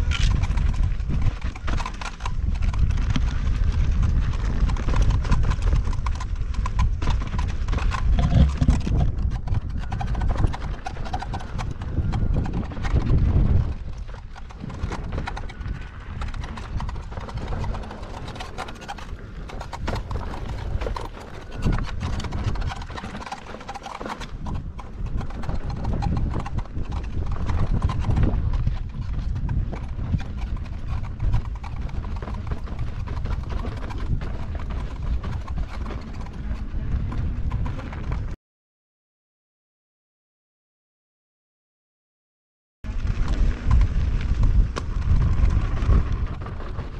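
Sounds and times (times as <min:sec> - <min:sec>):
heavy low rumble: 0:08.1 - 0:09.2.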